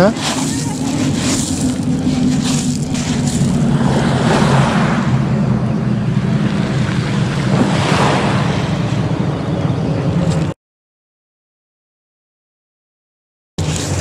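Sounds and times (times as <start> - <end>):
waves washing on pebble shore: 0.0 - 5.0
wind rumble on microphone: 0.0 - 10.6.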